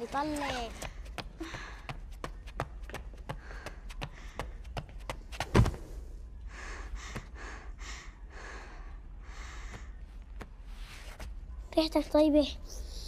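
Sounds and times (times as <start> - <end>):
person gasping and panting: 0.7 - 2.2
thump: 5.5 - 5.9.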